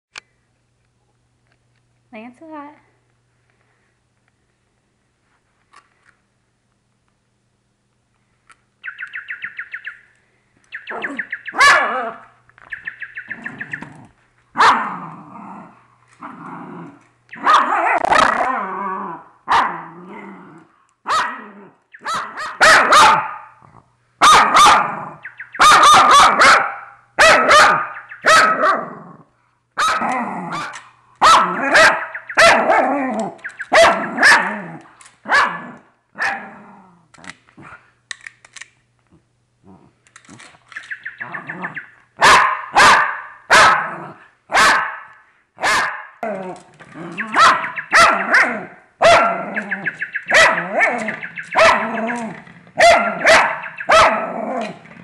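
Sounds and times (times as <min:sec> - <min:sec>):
small dog barking excitedly: 0:10.9 - 0:12.3, 0:14.5 - 0:15.0, 0:17.3 - 0:18.6, 0:19.4 - 0:19.9, 0:21.0 - 0:23.6, 0:24.2 - 0:28.9, 0:29.8 - 0:36.5, 0:41.3 - 0:46.3, 0:47.0 - 0:54.8
dog growling: 0:13.4 - 0:20.7, 0:29.9 - 0:30.8, 0:35.5 - 0:37.9, 0:39.6 - 0:40.0, 0:54.1 - 0:55.0.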